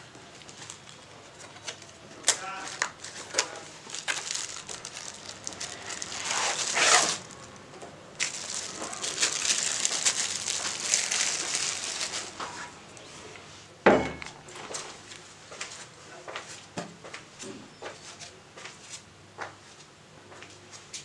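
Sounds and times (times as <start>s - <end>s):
plastic packaging crinkling: 0.3s - 13.1s.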